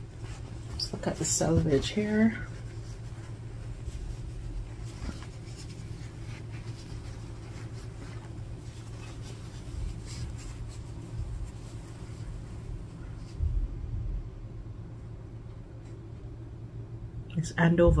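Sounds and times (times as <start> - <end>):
fabric rustling: 0.0 - 14.3
steady low hum: 0.0 - 18.0.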